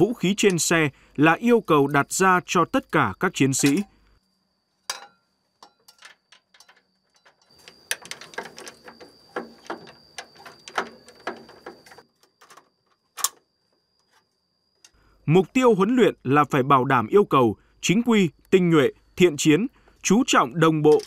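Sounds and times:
rifle metal clicks and clatter: 4.9s - 13.4s.

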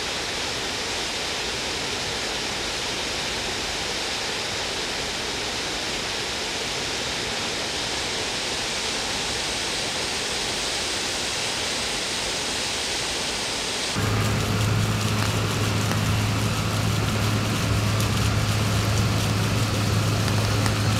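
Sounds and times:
fountain water cascading: 9.4s - 20.9s
steady low hum: 14.0s - 20.9s.

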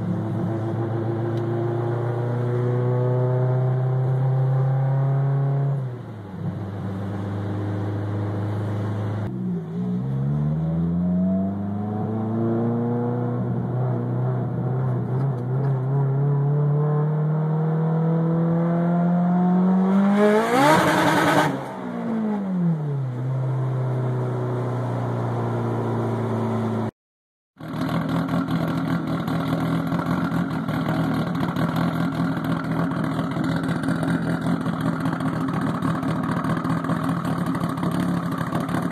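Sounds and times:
car engine accelerating: 0.0s - 26.9s
exhaust idling: 27.6s - 38.9s.

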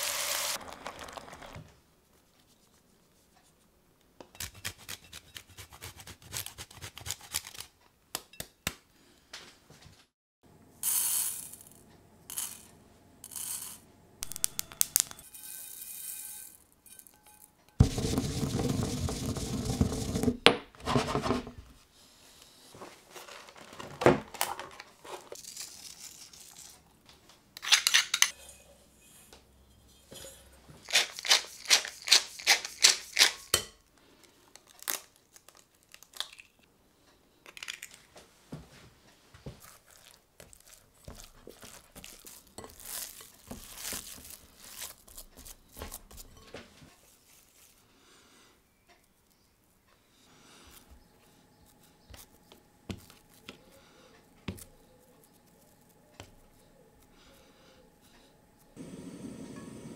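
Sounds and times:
hands squishing raw mince: 39.6s - 46.1s.

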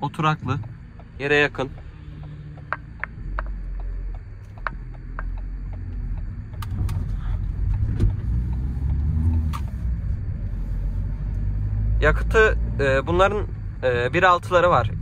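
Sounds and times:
van interior road rumble: 0.0s - 15.0s
light ticks: 0.1s - 9.8s.

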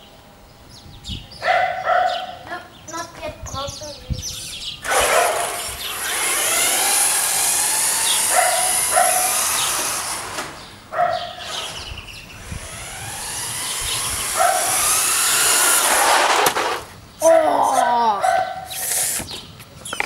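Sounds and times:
electric motor whining: 4.4s - 10.8s, 11.4s - 16.9s.

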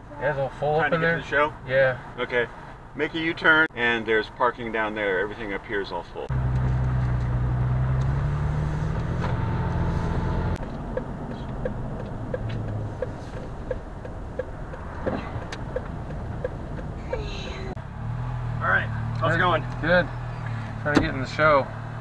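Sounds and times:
car engine and road drone: 0.0s - 22.0s
light regular ticking: 10.6s - 17.2s.

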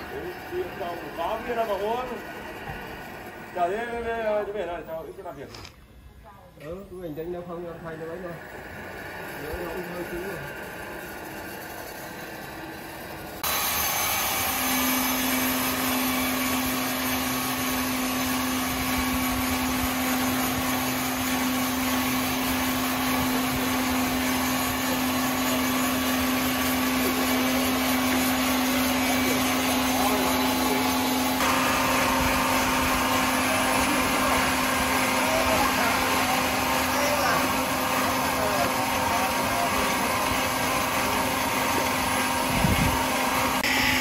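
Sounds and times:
sawmill machinery humming: 0.0s - 5.9s, 6.6s - 44.0s.

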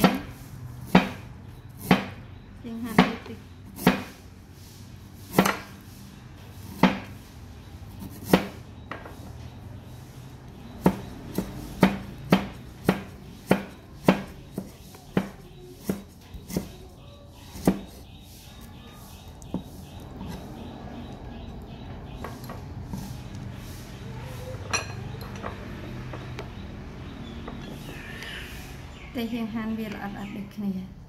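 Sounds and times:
cleaver chopping on wooden block: 0.9s - 1.2s, 5.3s - 5.7s, 10.8s - 16.8s.

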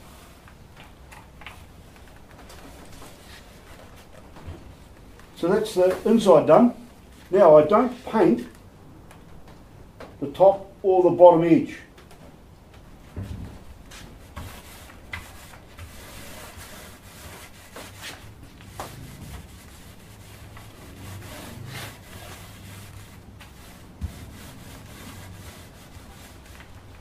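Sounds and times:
paint roller rubbing: 13.8s - 27.0s.

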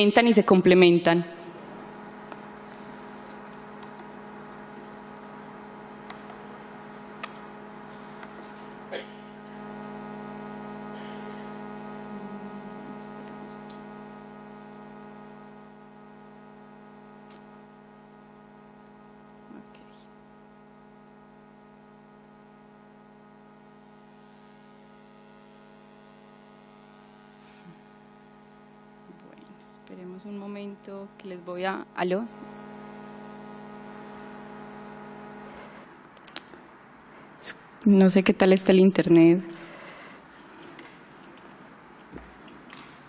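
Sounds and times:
electrical mains hum: 0.0s - 43.0s.

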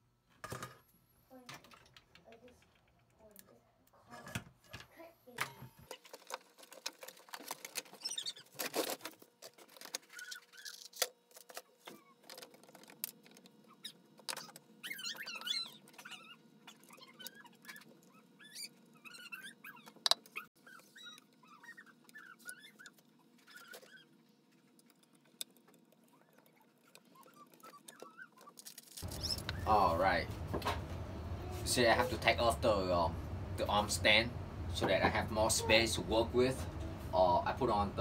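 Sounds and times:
small parts clicking and rattling: 5.5s - 18.6s, 19.3s - 29.5s
faint high squeaks: 7.9s - 8.6s, 13.7s - 24.2s, 26.1s - 30.2s.

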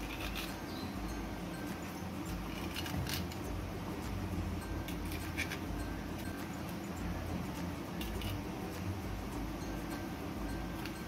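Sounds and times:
plant stems squeaking and clicking: 0.0s - 0.8s.

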